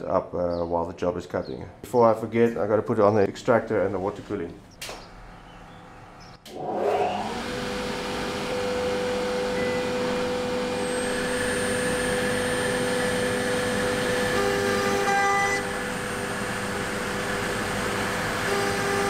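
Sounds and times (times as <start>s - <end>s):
dust extractor running: 4.8s - 19.0s
router spindle whine: 4.9s - 19.0s.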